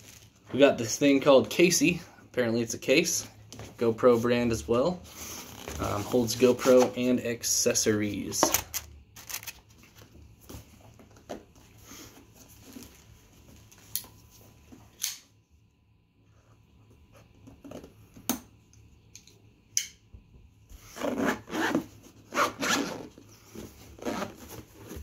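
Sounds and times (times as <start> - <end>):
handling clicks and rustling: 8.4 - 10.1
zipper being pulled: 20.9 - 25.0.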